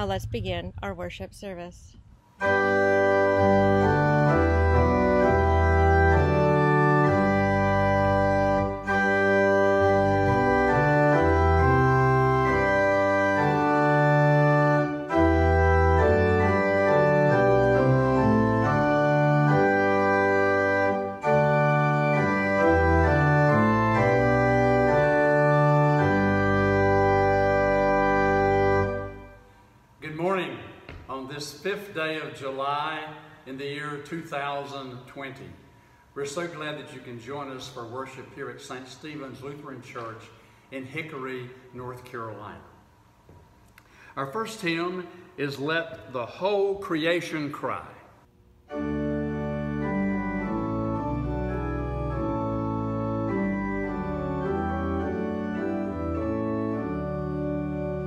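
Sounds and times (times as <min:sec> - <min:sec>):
pipe organ chords: 0:02.4 - 0:34.8, 0:48.7 - 0:58.0.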